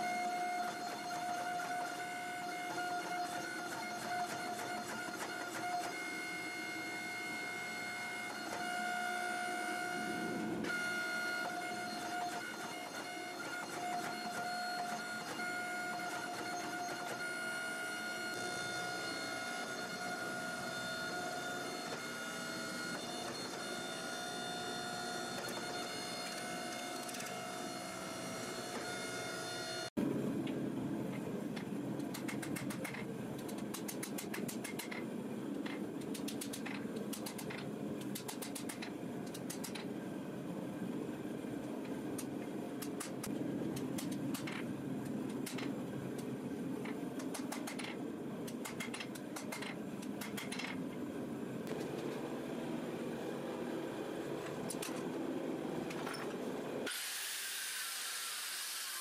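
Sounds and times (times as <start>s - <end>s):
hydraulic press whining: 0.0s - 29.9s.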